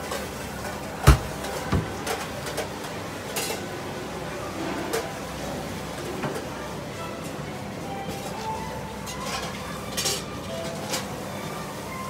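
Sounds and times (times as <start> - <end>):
utensils and containers clattering: 0.0 - 3.8, 8.1 - 11.2.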